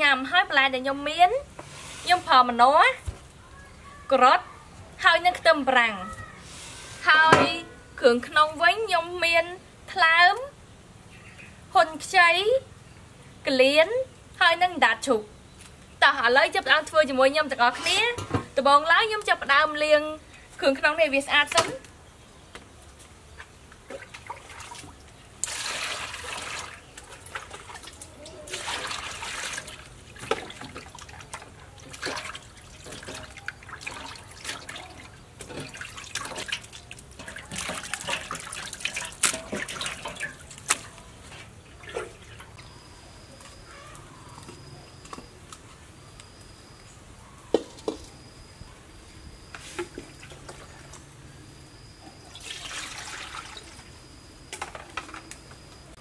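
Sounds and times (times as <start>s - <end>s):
water splashing in metal basin: 23.8s - 42.6s, 52.3s - 53.9s
water poured into wok: 32.1s - 40.4s, 52.4s - 53.8s
faint high call: 42.7s - 45.0s.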